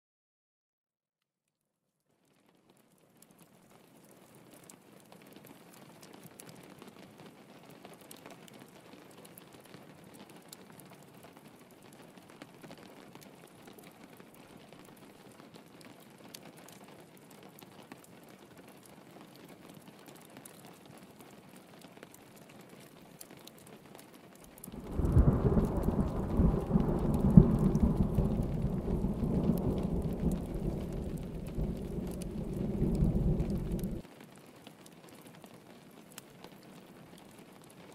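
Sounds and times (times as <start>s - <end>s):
rain pattering on a window: 2.0s - 37.9s
thunder rumbling: 24.6s - 34.0s.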